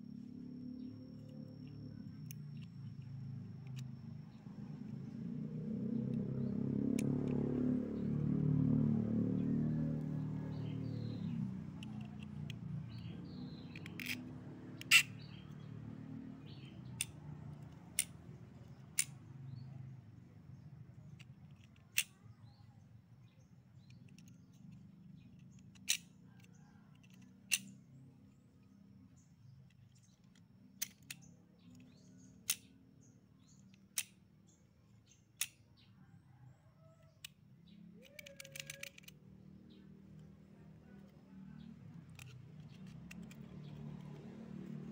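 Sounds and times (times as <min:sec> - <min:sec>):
metal parts clicking: 0:02.2 - 0:03.0, 0:11.8 - 0:15.2, 0:16.9 - 0:19.2, 0:21.1 - 0:22.2, 0:23.8 - 0:27.7, 0:29.7 - 0:32.7, 0:38.0 - 0:39.2, 0:42.0 - 0:44.2.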